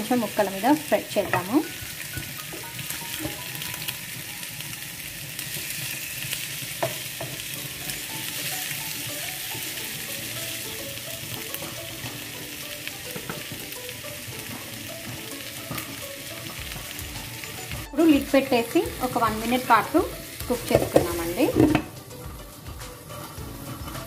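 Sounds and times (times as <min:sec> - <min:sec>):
fish sizzling in hot oil: 0:00.0 - 0:24.0
wooden spatula scraping pan: 0:20.5 - 0:21.9, 0:23.0 - 0:24.0.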